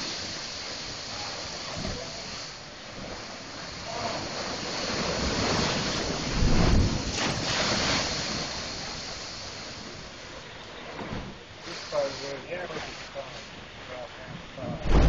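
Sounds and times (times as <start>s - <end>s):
water pouring off rocks: 0.0s - 9.9s
surf surging into rocks: 0.0s - 14.2s.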